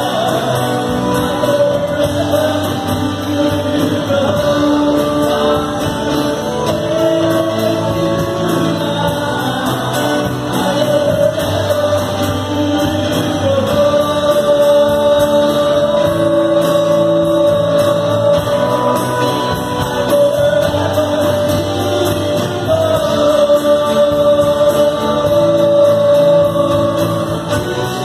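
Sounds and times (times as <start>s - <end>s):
live rock band playing: 0.0s - 28.0s
singers holding long notes: 0.0s - 28.0s.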